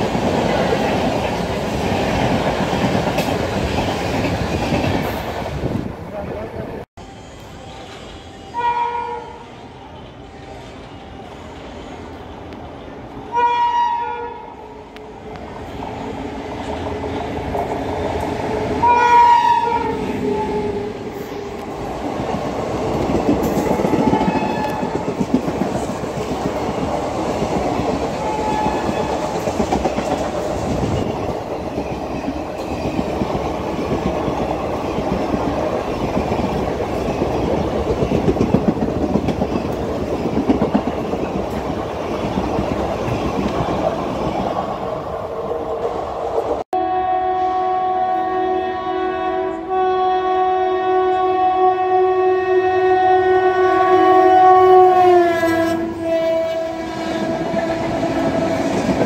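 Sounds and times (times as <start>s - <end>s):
train rail clatter: 0.0s - 5.9s, 21.1s - 46.6s, 55.0s - 59.0s
locomotive horn: 7.8s - 11.3s, 13.3s - 14.8s, 18.8s - 20.9s, 23.8s - 25.0s, 46.8s - 58.7s.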